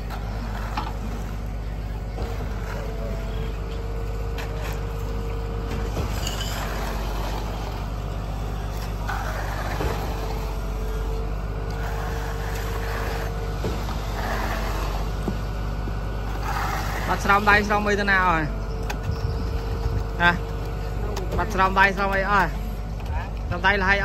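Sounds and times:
diesel engine droning: 0.0 - 24.0.

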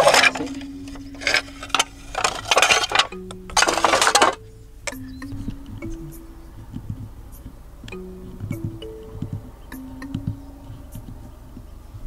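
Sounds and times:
roofing sheets scraping and clinking: 0.0 - 4.5.

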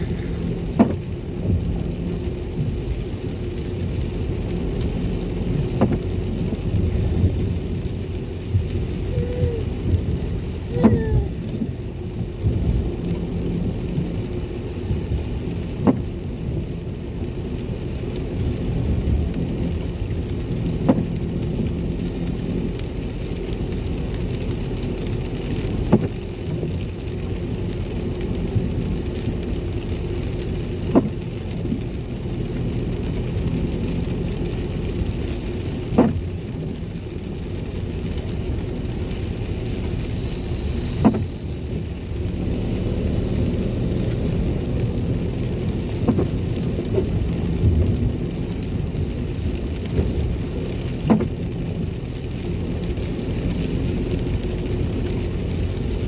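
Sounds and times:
car engine and tyres rumbling: 0.0 - 56.0
rain on windscreen: 0.0 - 56.0.

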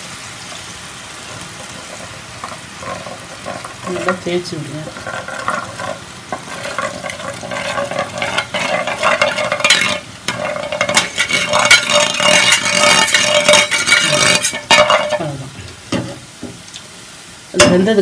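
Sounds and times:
batter sizzling in hot oil: 0.0 - 18.0
metal scraping on metal: 4.8 - 16.2.

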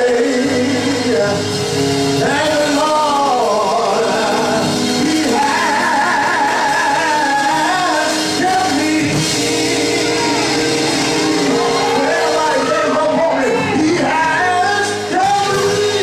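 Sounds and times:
man singing with vibrato: 0.0 - 16.0
sustained keyboard chords: 0.0 - 16.0.

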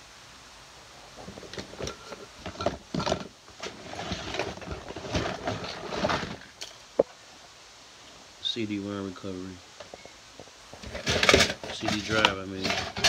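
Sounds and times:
handling knocks and rustling: 1.1 - 7.2, 9.8 - 13.0.

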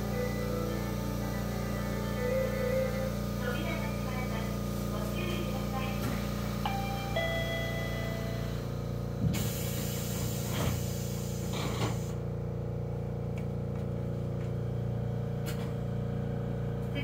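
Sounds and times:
steady electrical hum: 0.0 - 17.0
chime tone: 6.6 - 8.7
hiss of air: 9.2 - 12.2.

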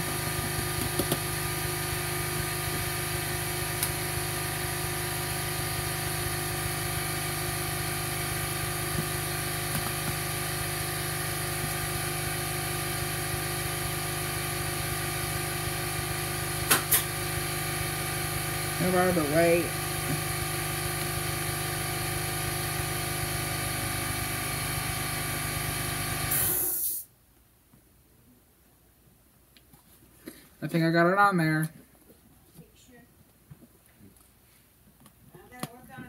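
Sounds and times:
machine humming: 0.0 - 24.6.

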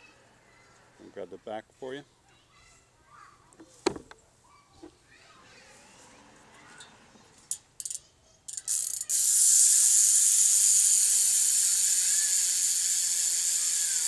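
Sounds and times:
freewheel ratcheting buzz: 7.4 - 14.0
bicycle hub clicks: 7.5 - 14.0.

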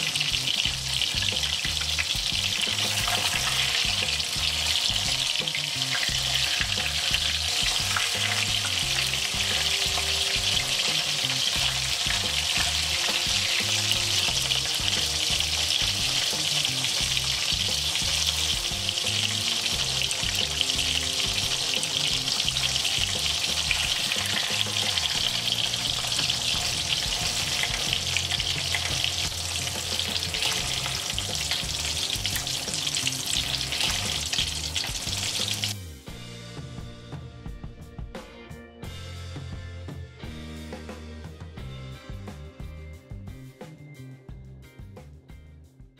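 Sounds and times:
fritters deep-frying in hot oil: 0.0 - 35.8.

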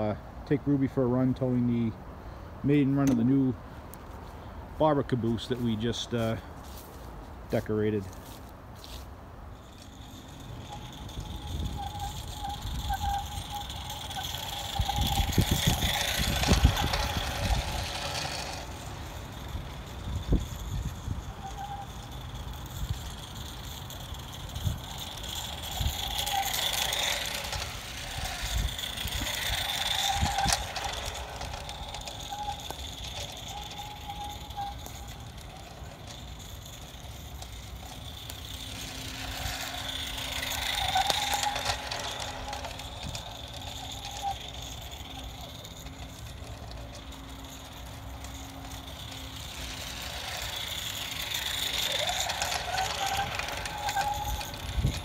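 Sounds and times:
train wheels clattering on rails: 21.5 - 55.0.

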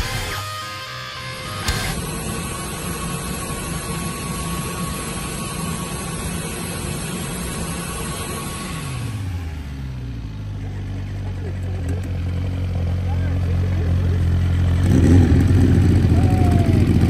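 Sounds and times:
cnc machine hissing and whining: 0.0 - 10.2
low hum: 0.0 - 17.0.

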